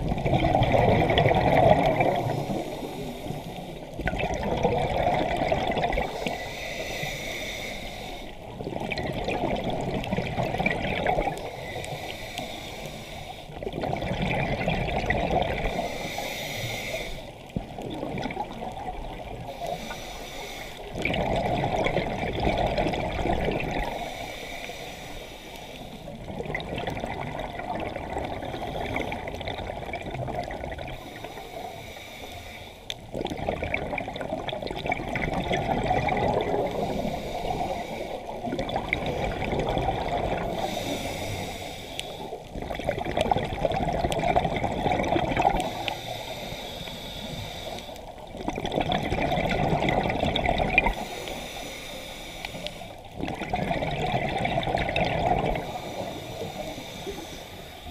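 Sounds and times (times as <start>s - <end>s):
exhaled bubbles gurgling underwater: 0.0s - 57.9s
regulator inhaling hiss: 2.1s - 3.9s, 6.0s - 8.5s, 11.4s - 13.6s, 15.6s - 17.4s, 19.4s - 21.0s, 23.8s - 26.2s, 31.0s - 33.0s, 36.6s - 38.4s, 40.4s - 42.5s, 45.6s - 48.2s, 50.9s - 53.1s, 55.6s - 57.9s.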